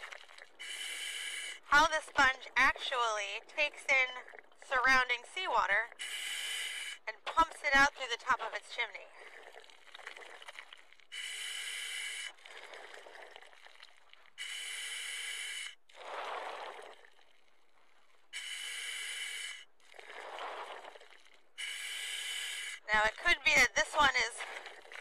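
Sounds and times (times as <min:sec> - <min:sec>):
diver breathing through regulator: 0:00.0 - 0:02.0, 0:05.9 - 0:07.1, 0:09.1 - 0:17.5, 0:18.3 - 0:23.2
exhaled bubbles rushing: 0:09.1 - 0:11.0, 0:15.9 - 0:17.9, 0:19.9 - 0:21.6.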